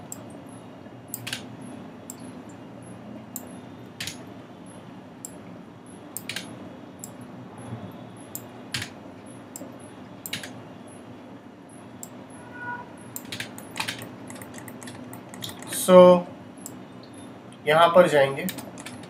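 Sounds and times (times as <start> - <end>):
computer mouse clicking: 6.2 - 7.2, 10.3 - 10.6, 13.2 - 15.8.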